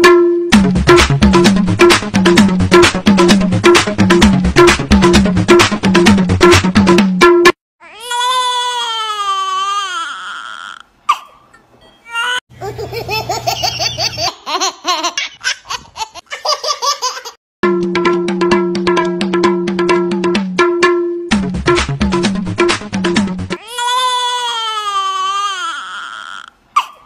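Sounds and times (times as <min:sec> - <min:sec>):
music with drum beat: 0:00.0 - 0:07.6, 0:17.6 - 0:23.6
baby crying: 0:07.8 - 0:11.4, 0:12.1 - 0:13.0, 0:23.6 - 0:27.0
baby laughing: 0:12.1 - 0:17.4.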